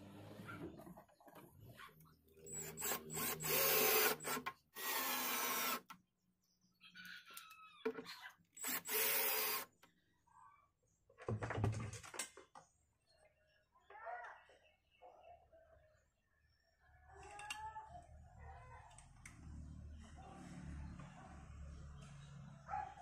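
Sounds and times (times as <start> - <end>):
cordless drill driving screws: 2.4 - 6.0, 8.6 - 9.7.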